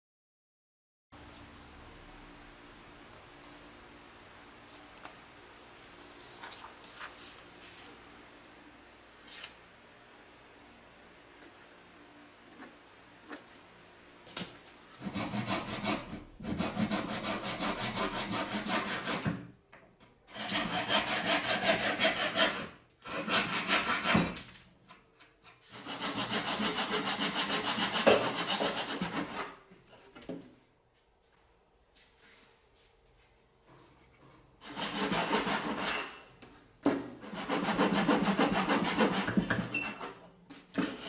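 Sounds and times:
handsaw cutting thin wood: 15.0 - 19.3, 20.3 - 24.2, 25.7 - 29.6, 34.6 - 36.1, 37.2 - 39.8.

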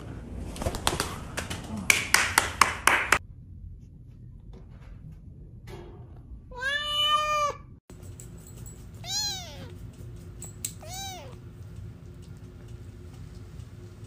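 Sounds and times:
cat meowing: 6.6 - 7.7, 9.0 - 9.8, 10.8 - 11.4
kitten mewing: 10.8 - 11.4.

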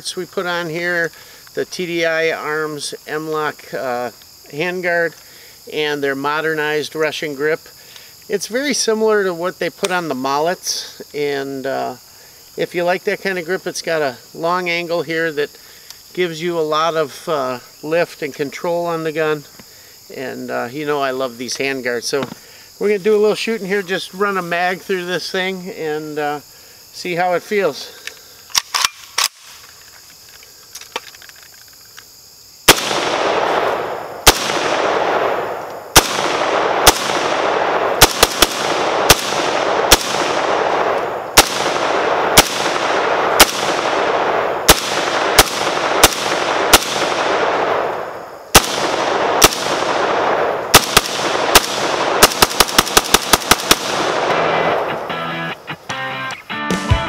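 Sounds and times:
rifle shots echoing: 32.7 - 55.1.

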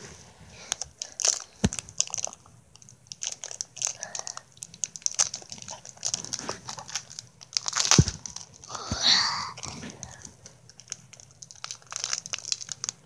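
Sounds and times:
crinkling: 0.0 - 13.0
close-up wet chewing: 0.7 - 8.8.

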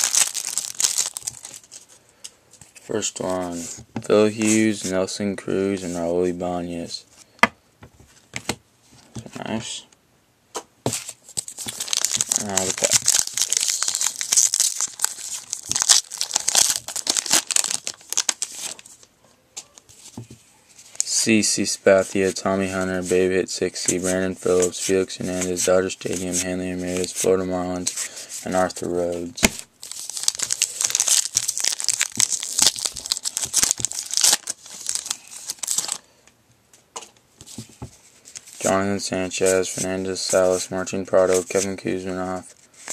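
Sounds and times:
wrapper tearing and crinkling: 0.0 - 1.9, 11.4 - 19.0, 29.5 - 36.0.

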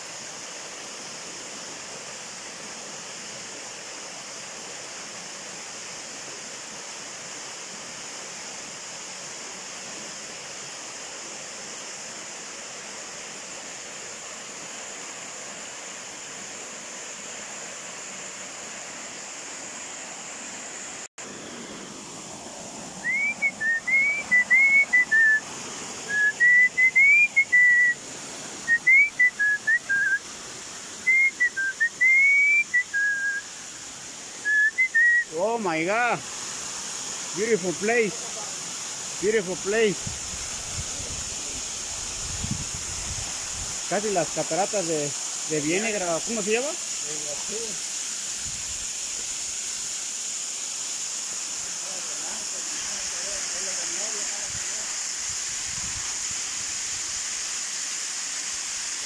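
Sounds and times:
waterfall rushing: 0.0 - 59.0
person whistling: 23.0 - 25.4, 26.1 - 28.0, 28.7 - 30.2, 31.0 - 33.5, 34.4 - 35.4.

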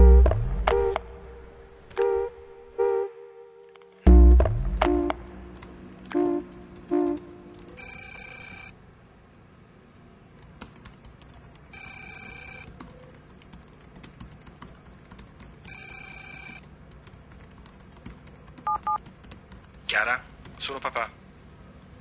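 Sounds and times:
typing on laptop keyboard: 5.1 - 8.7, 10.4 - 20.7
telephone ringing: 7.7 - 8.8, 11.7 - 12.8, 15.6 - 16.6.

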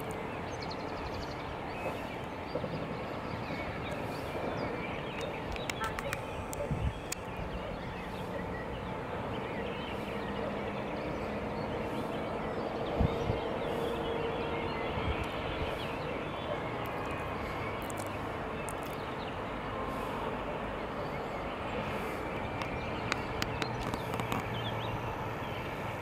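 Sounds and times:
outdoor background noise: 0.0 - 26.0
scattered clicks: 5.1 - 7.3.

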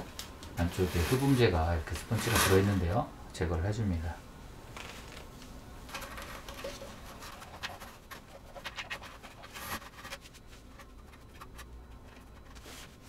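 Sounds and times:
foam rustling and scratching in box: 0.6 - 3.0, 6.0 - 11.6.

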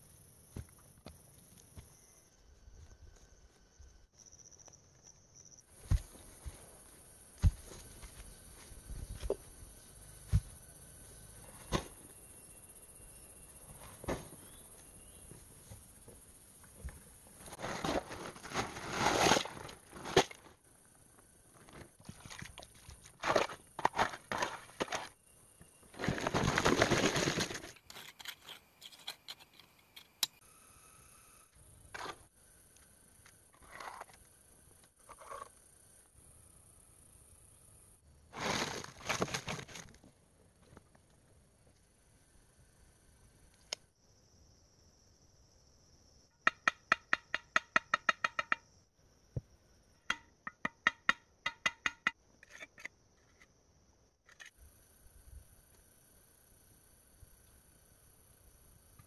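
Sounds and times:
concrete blocks knocking on ground: 50.1 - 52.2.

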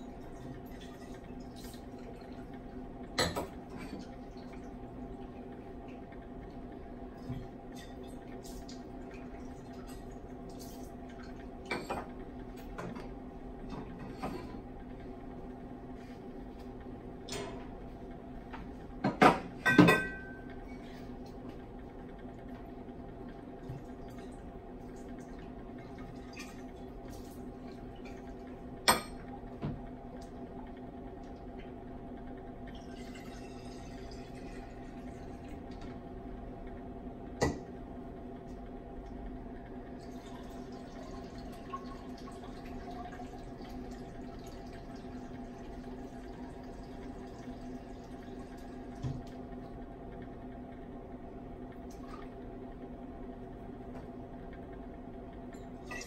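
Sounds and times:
steady hum: 0.0 - 56.0
water running into a vessel: 39.9 - 49.5.

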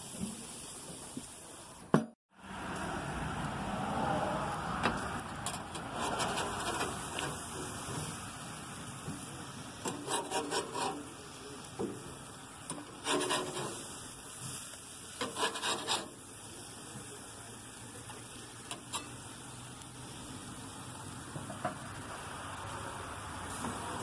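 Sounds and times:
metal spatula scraping grill grate: 4.8 - 8.2, 9.8 - 16.4, 18.0 - 19.4
steady background hiss: 6.5 - 24.0.

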